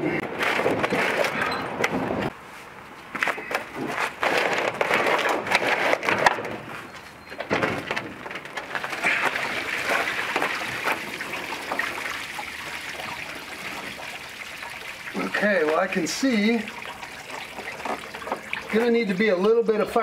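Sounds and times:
rustling scrape: 3.8s - 7.1s.

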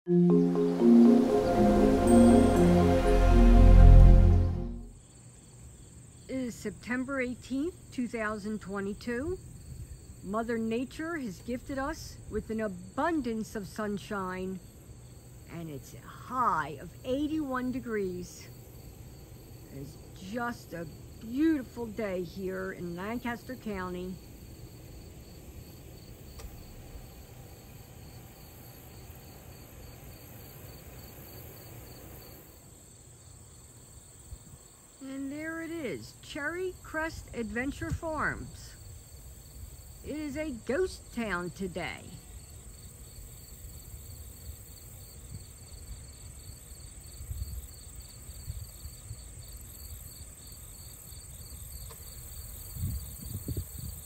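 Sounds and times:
high trill: 0.1s - 4.9s
crickets chirping: 4.9s - 54.0s
low gusty rumble: 24.4s - 29.2s.

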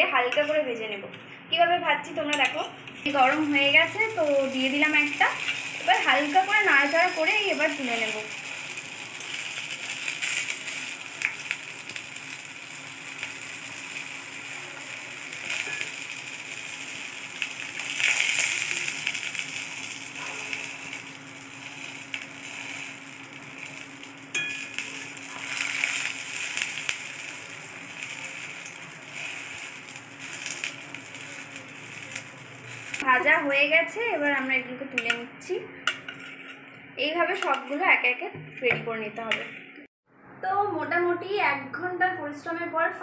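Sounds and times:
food sizzling in hot oil: 3.0s - 33.3s
spatula scraping and tapping pan: 35.9s - 36.6s.

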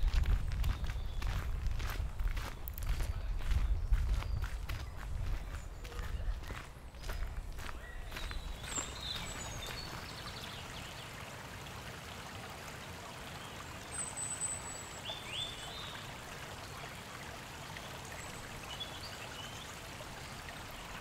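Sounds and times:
bird chirps: 3.6s - 10.6s.

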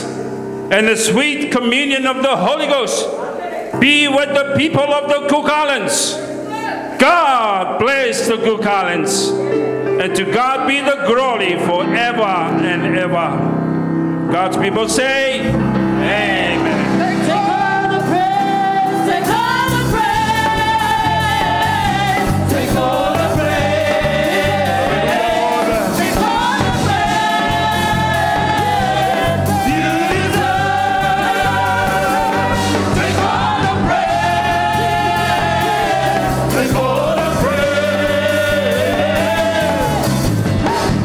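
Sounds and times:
live band playing: 15.4s - 41.0s
several voices singing: 15.4s - 41.0s.

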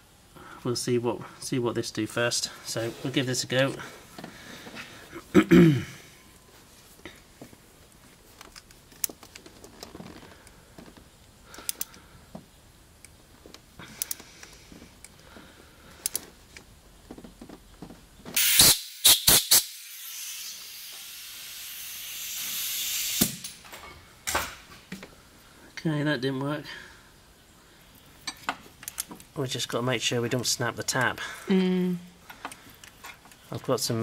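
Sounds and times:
tap wrench metal clicks: 11.5s - 12.0s, 16.0s - 16.3s
aerosol can spraying: 18.4s - 23.4s.

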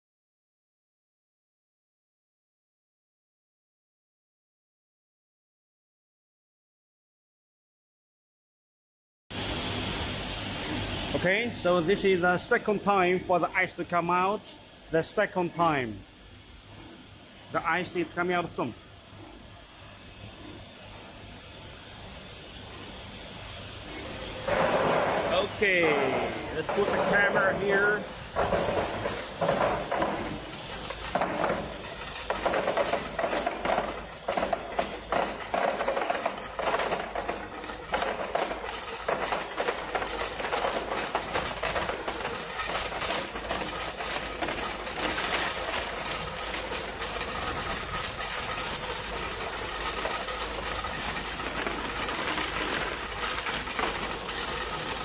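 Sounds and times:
ice machine running: 9.4s - 55.0s
faint mechanical whine: 9.5s - 55.0s
ice clattering into basin: 24.5s - 55.0s.

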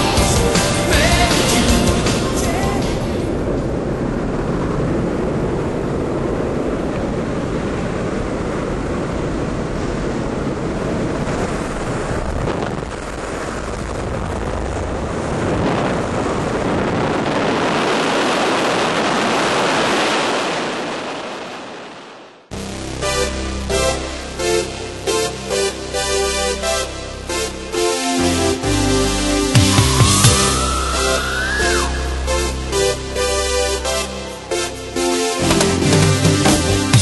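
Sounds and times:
rushing airflow buffeting microphone: 0.0s - 37.0s
aircraft engine noise: 22.5s - 37.0s.

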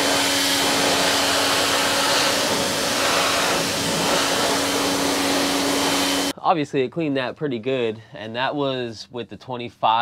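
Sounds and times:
pressure washer pump humming: 0.0s - 6.3s
water jet hissing: 0.0s - 6.3s.

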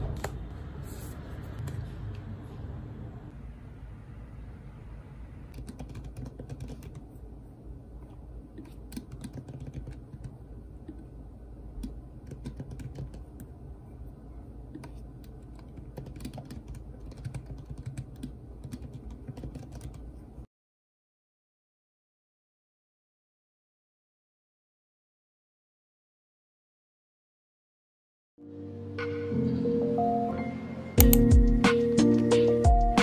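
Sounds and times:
low steady hum: 0.0s - 20.5s
laptop keyboard typing: 5.6s - 7.1s, 8.6s - 10.4s, 11.8s - 13.5s, 14.8s - 20.1s, 31.0s - 31.4s.

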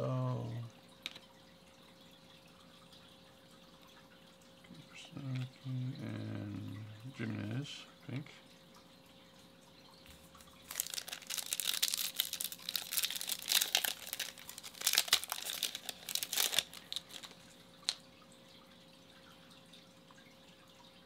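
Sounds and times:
foil wrapper crinkling and tearing: 10.6s - 18.0s.

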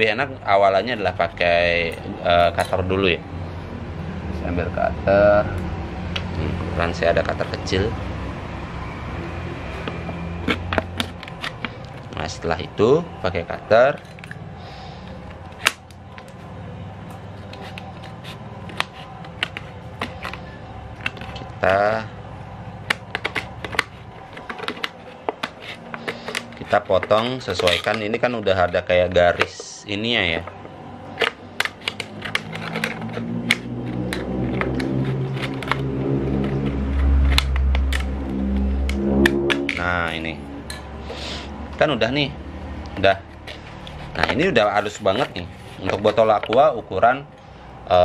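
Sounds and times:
steady low hum: 0.0s - 48.0s
utility knife cutting plastic: 9.7s - 12.0s, 17.2s - 22.0s, 22.8s - 29.8s, 30.6s - 38.9s
low hum: 30.4s - 46.2s
utility knife clicking on plastic bottle: 31.2s - 35.8s.

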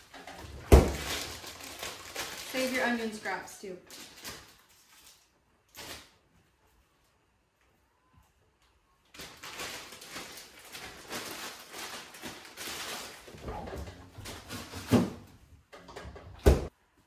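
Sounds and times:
plastic bag crinkling: 0.0s - 6.2s, 9.0s - 13.4s
refrigerator door thumps: 0.6s - 1.1s, 16.3s - 16.7s.

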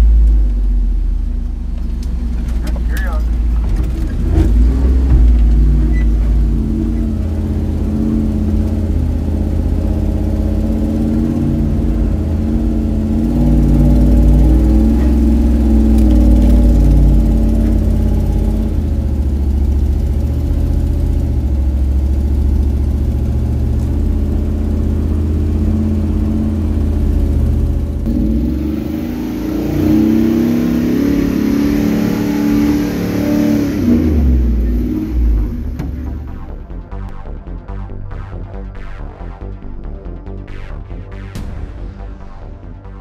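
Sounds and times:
car engine running: 0.0s - 38.2s.

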